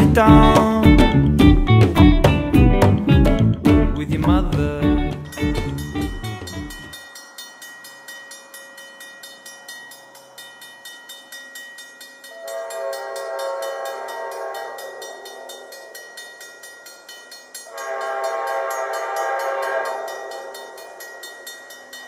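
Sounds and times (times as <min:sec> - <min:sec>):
railroad crossing bell ringing: 0:05.2 - 0:22.0
locomotive horn: 0:12.4 - 0:15.1, 0:17.7 - 0:20.5.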